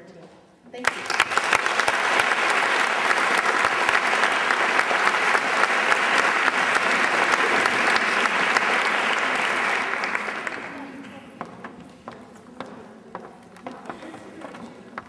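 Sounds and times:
audience applauding: 0.8s - 11.1s.

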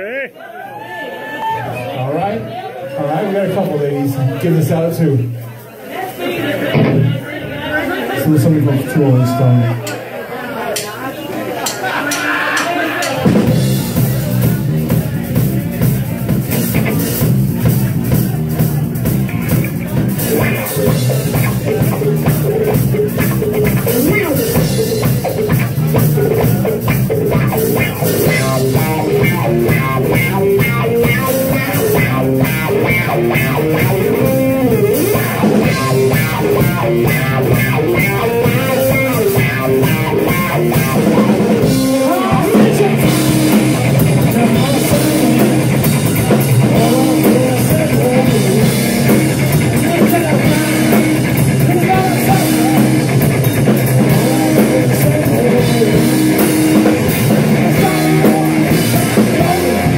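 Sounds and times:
drum kit: 6.7s - 7.2s, 11.6s - 59.9s
electric guitar: 13.1s - 59.9s.

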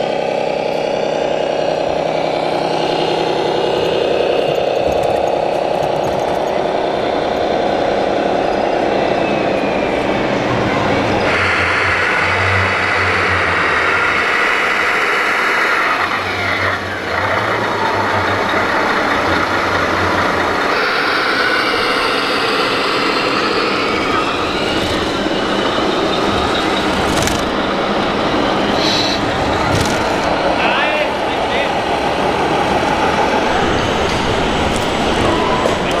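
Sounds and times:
falling whine: 0.0s - 36.0s
model trucks engine sound effects: 0.0s - 36.0s
busy exhibition hall din: 5.9s - 14.9s.

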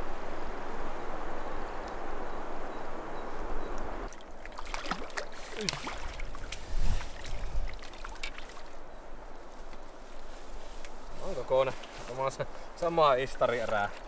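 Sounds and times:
river water rushing: 0.0s - 9.3s
water splashing and sloshing: 3.8s - 12.3s.

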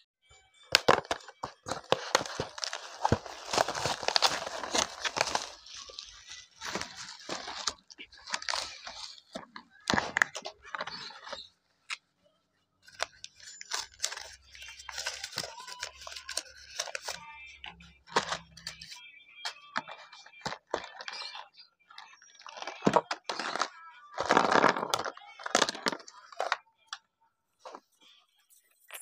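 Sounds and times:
paper and plastic crinkling: 0.7s - 11.5s, 12.8s - 26.6s
hard plastic pieces clicking: 12.9s - 17.2s.

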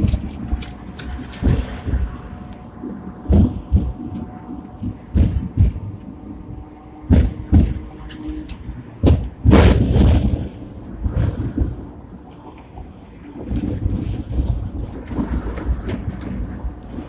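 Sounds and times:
tram running rumble: 0.0s - 17.0s
loud knocks and rattles: 7.1s - 8.0s.

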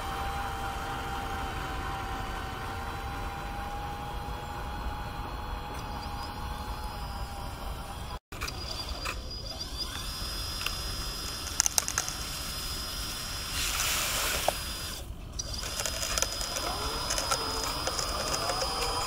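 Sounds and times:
small electric motor whining: 0.0s - 19.0s
sharp clicks: 0.1s - 12.8s, 13.7s - 19.0s
gravel and mud sliding out: 15.4s - 19.0s.

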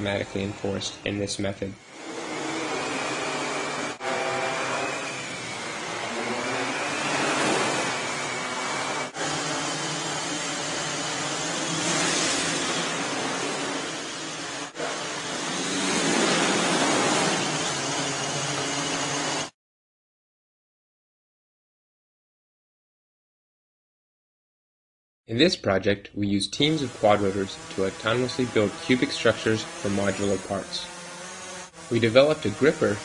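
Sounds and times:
drone propellers whirring: 1.8s - 19.5s, 26.6s - 33.0s.

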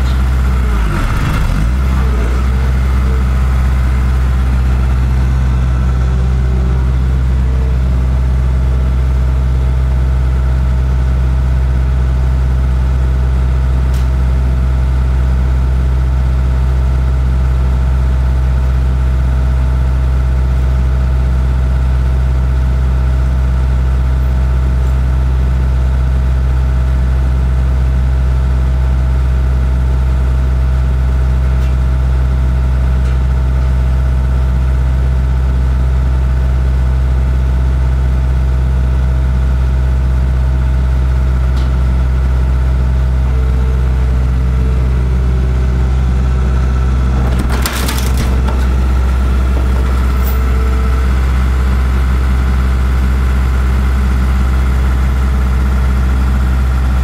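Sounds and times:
motor engine humming: 0.0s - 10.0s, 44.3s - 53.1s.

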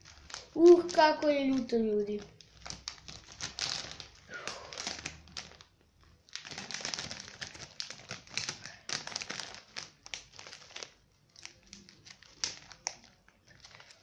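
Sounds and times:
plastic chip bag crinkling: 0.0s - 14.0s.

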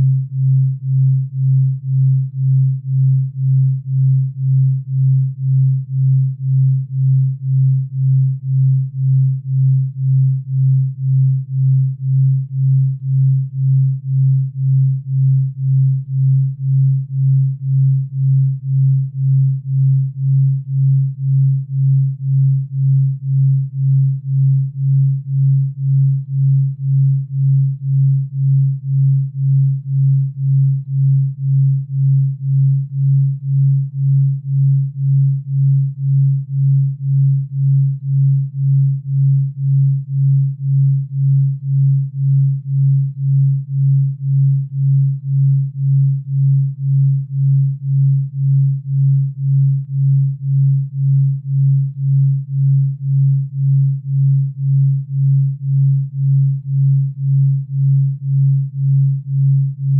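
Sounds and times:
low pulsing sine tone: 0.0s - 59.9s.

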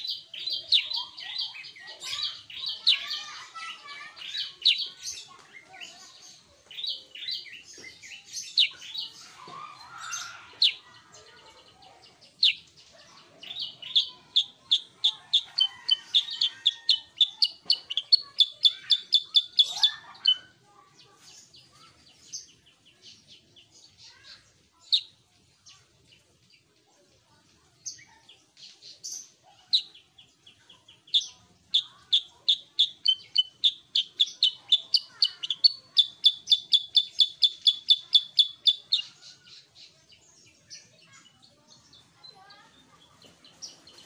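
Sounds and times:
bird singing sharp chirps: 31.1s - 39.9s.

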